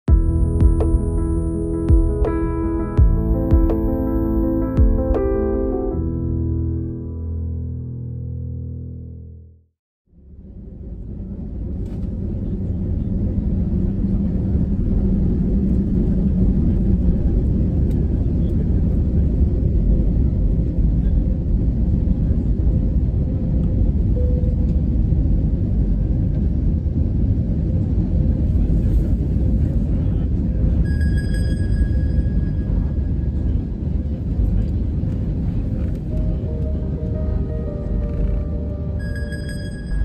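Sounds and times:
airplane cabin engine rumble: 10.2 - 40.0.

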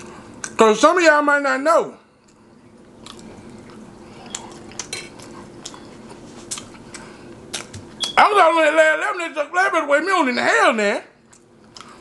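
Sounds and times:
chewing fries: 2.1 - 8.1, 11.2 - 12.0
wet mouth clicks and smacks: 6.5 - 8.2.

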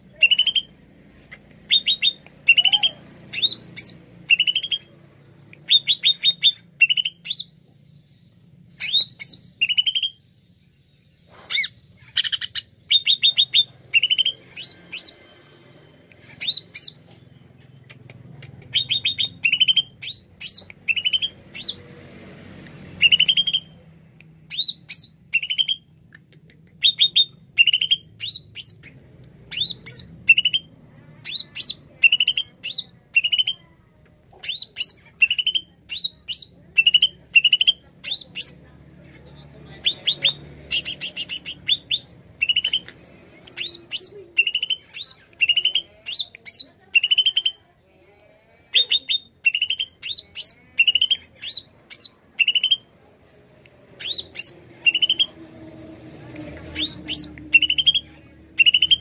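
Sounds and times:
bird singing whistled notes: 39.8 - 42.9, 56.8 - 59.0.

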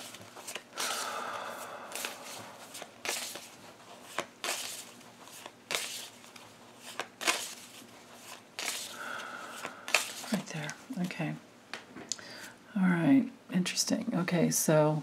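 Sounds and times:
cards being shuffled: 0.0 - 1.1, 1.9 - 11.1
cards snapping: 1.9 - 3.5, 4.1 - 7.6, 8.2 - 9.0, 9.6 - 10.8.

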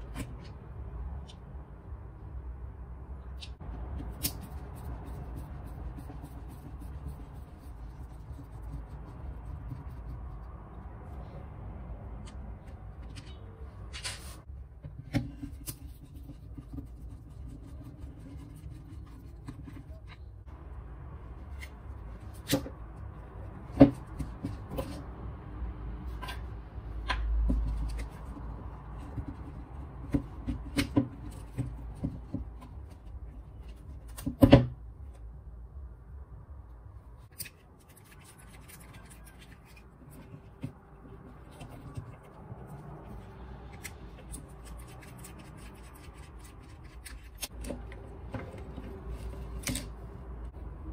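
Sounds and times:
rubbing and fumbling: 3.6 - 11.5, 12.2 - 25.3, 37.0 - 50.9.

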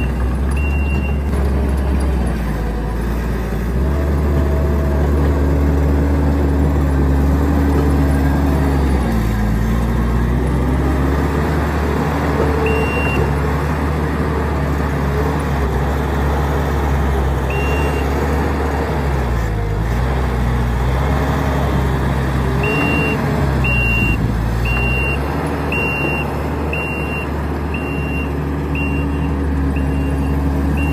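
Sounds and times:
reversing alarm beeps: 0.0 - 1.3, 12.6 - 13.3, 17.5 - 18.1, 22.6 - 30.9
diesel engine running hard: 0.0 - 30.9.

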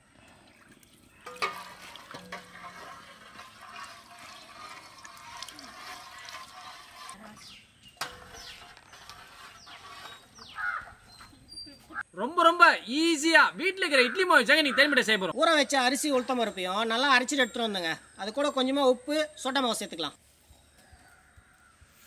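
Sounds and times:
oil pouring: 0.6 - 7.2.

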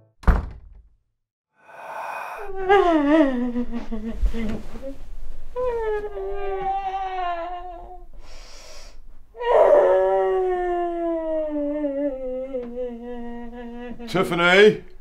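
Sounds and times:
gasping breath: 1.6 - 3.0, 8.2 - 9.1
woman wailing: 1.7 - 3.9, 9.4 - 14.3.

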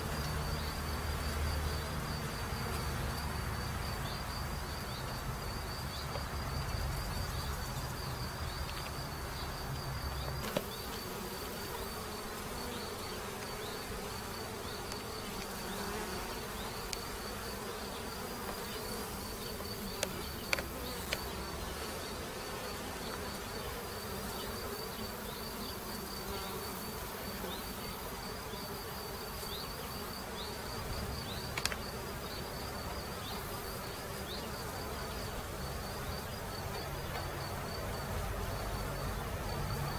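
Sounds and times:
bees buzzing: 0.0 - 39.9
faint sharp clicks: 31.5 - 31.8.

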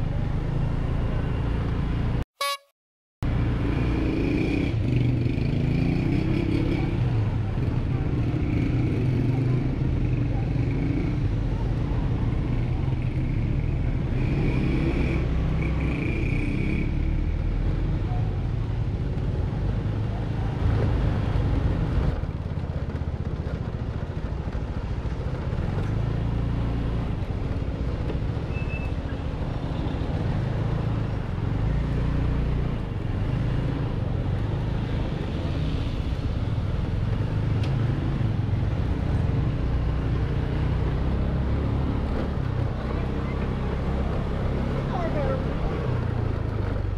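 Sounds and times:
tyre and street noise: 0.0 - 46.9
short high-pitched tones: 2.4 - 2.7.

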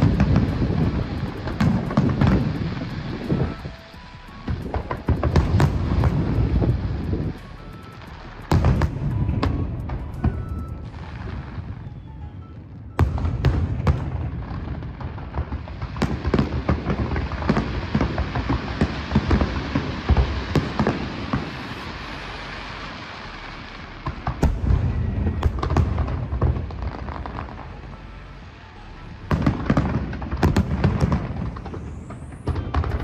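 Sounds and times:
firework booms: 0.0 - 3.6, 4.4 - 7.5, 8.5 - 12.0, 12.6 - 23.0, 23.9 - 27.7, 29.3 - 33.0
firework crackling: 0.0 - 33.0.

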